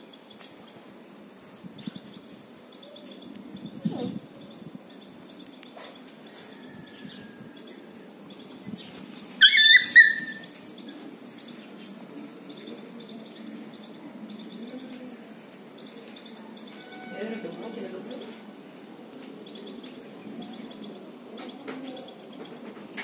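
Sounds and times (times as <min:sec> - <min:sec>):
puppy yelping: 0:09.4 - 0:10.5.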